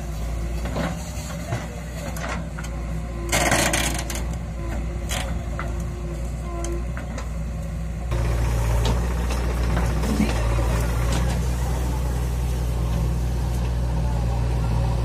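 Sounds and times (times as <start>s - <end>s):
backhoe diesel engine running: 0.0s - 15.0s.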